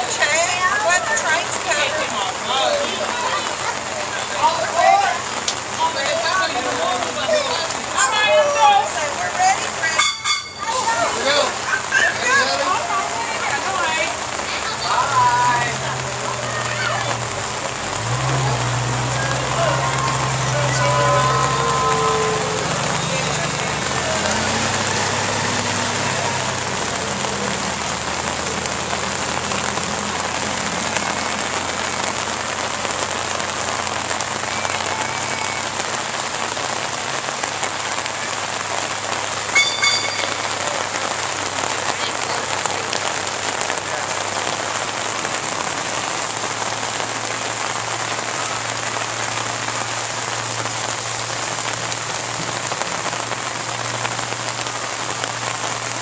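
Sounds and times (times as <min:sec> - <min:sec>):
heavy rain on wet pavement: 0:00.0 - 0:56.0
brief sharp sound: 0:39.6 - 0:40.8.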